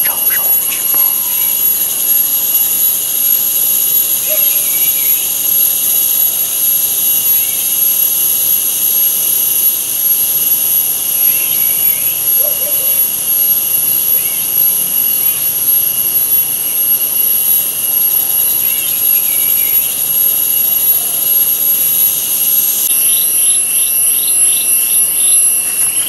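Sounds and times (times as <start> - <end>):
insect chorus drone: 0.0 - 26.0.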